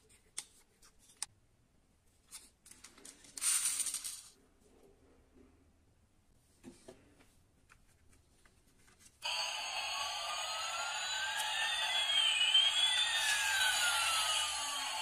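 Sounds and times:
toy jet engine sound effect: 0:09.2 - 0:15.0.

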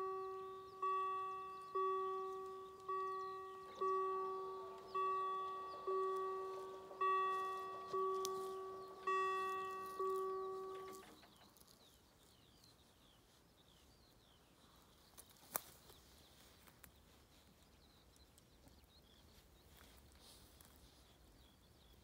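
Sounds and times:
level crossing warning bell: 0:00.0 - 0:11.4
faint bird chirps: 0:00.0 - 0:22.0.

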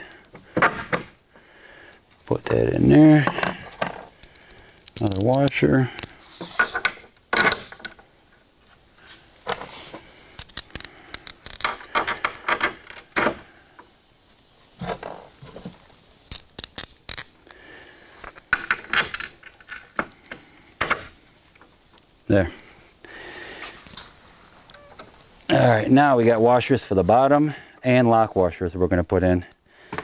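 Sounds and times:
metal bolts clinking on a vise: 0:03.2 - 0:08.0, 0:10.4 - 0:13.4, 0:16.3 - 0:17.4, 0:18.2 - 0:20.0.

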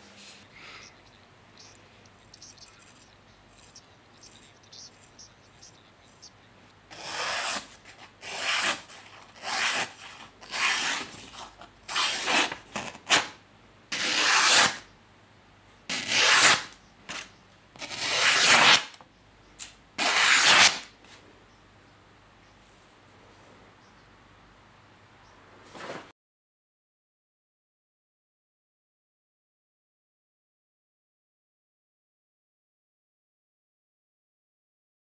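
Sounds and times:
knife slicing paper: 0:06.9 - 0:13.4, 0:14.0 - 0:14.8, 0:15.9 - 0:18.9, 0:20.0 - 0:20.9.

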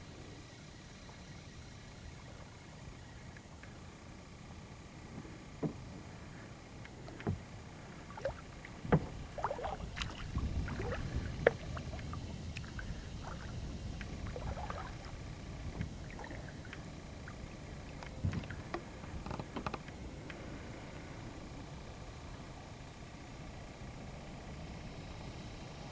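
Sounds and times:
paddle splashing in water: 0:08.0 - 0:16.7.

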